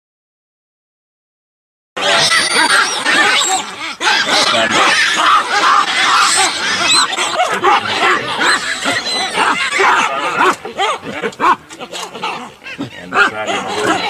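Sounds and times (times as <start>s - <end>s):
baboons barking and calling: 2.0s - 14.0s.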